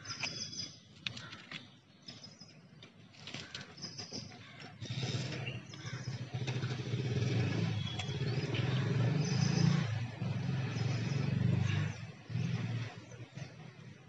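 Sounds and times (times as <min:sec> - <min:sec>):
engine droning: 0:03.3 - 0:14.0.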